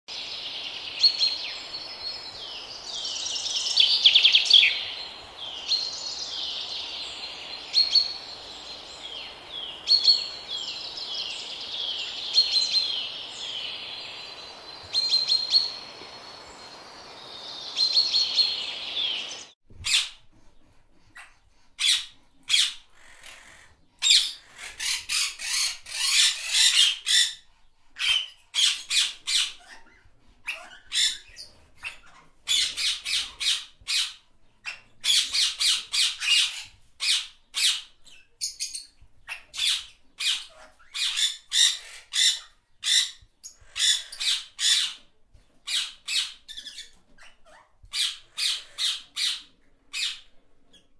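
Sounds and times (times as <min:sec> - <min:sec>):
birds chirping chorus: 0:00.1 - 0:19.6
parrots squawking: 0:21.2 - 0:27.4, 0:39.3 - 0:45.0, 0:45.6 - 0:50.3.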